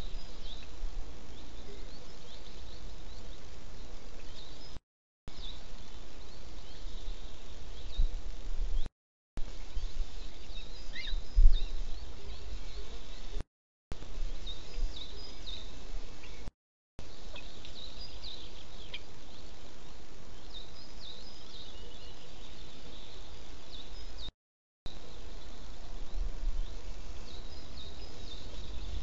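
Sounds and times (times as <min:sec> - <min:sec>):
small birds chirping: 0:00.0 - 0:24.3, 0:24.9 - 0:29.0
steady background hiss: 0:14.0 - 0:24.3, 0:24.9 - 0:29.0.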